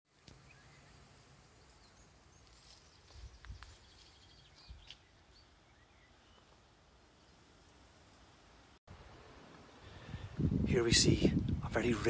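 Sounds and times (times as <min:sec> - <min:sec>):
distant bird chirps: 0:00.2 - 0:08.3.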